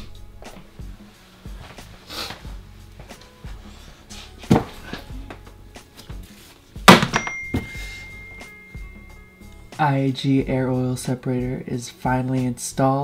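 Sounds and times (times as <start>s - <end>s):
background music with slow beat: 0.0s - 13.0s
held high tone: 7.1s - 10.1s.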